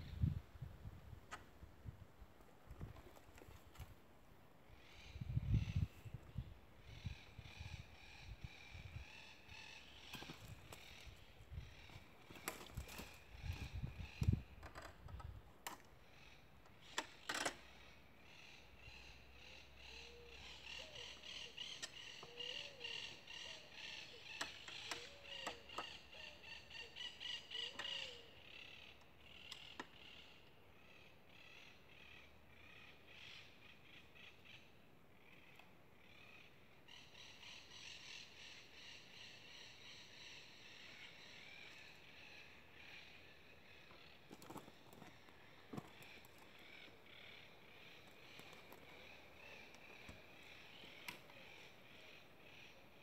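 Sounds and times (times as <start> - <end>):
birds chirping: 16.0 - 53.0.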